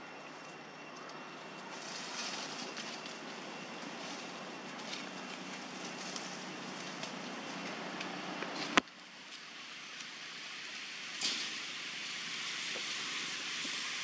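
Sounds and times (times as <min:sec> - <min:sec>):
forest ambience hiss: 0:00.0 - 0:14.0.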